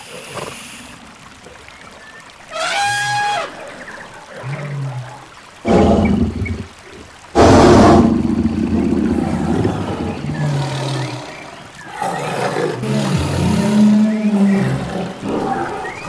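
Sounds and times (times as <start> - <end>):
big cat roaring: 4.5 - 6.4, 7.4 - 16.0.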